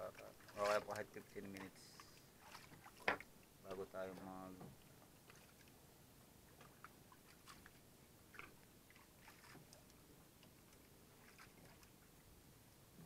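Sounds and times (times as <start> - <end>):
faint clicks and crackles: 9.4 - 11.9.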